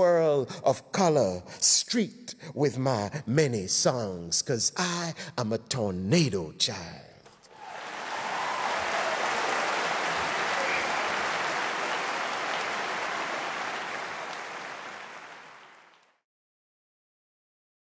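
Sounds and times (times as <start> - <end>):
audience applauding: 7.5 - 16.2.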